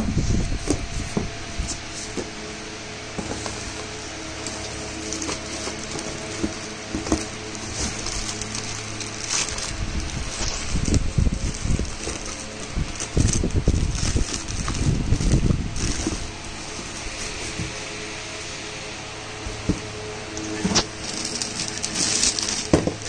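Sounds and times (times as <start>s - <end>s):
cardboard rustling: 3.2s - 18.6s, 19.5s - 23.0s
plastic wrapping crinkling: 3.4s - 18.1s, 19.5s - 23.0s.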